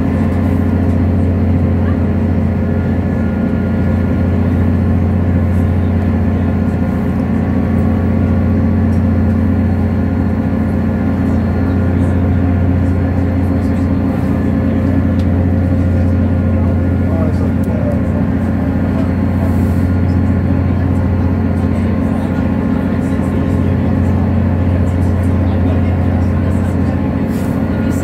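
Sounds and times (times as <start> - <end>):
train running hum and rumble: 0.0 - 28.0.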